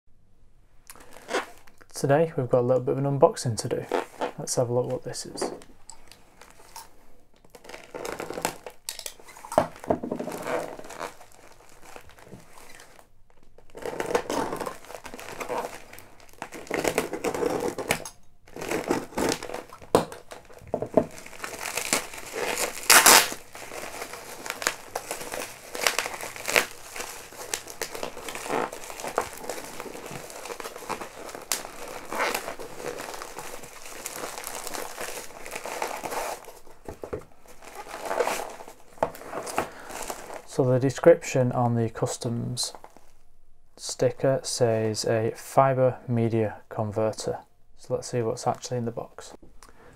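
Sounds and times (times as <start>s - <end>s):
plastic mailer crinkling and tearing: 3.8s - 40.6s.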